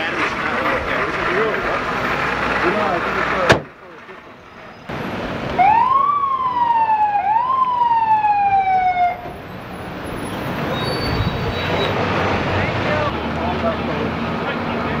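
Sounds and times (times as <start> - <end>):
street traffic hum: 0.0 - 15.0
emergency vehicle siren whoops: 5.5 - 9.4.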